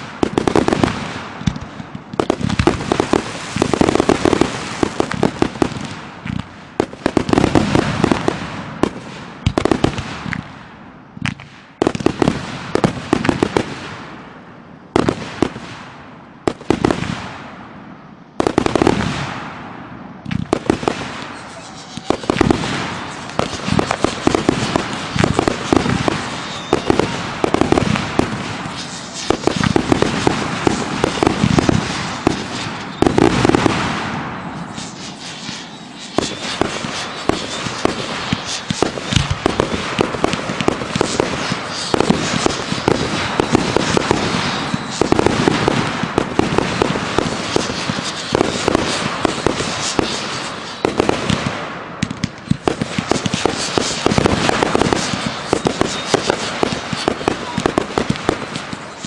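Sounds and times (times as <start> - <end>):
aerial firework bursts: 0.0 - 59.0
firework launch thumps: 22.0 - 58.7.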